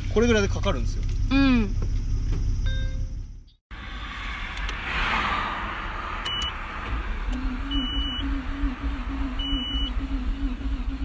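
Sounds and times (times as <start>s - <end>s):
short high beeps: 7.7s - 8.4s.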